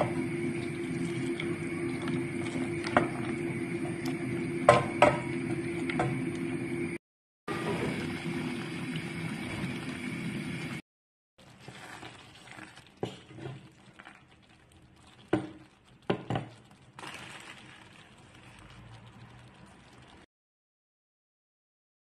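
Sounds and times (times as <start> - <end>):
wooden spoon stirring soup: 0.0 - 4.8, 11.4 - 20.2
soup simmering in a pan: 0.0 - 6.4, 11.4 - 20.3.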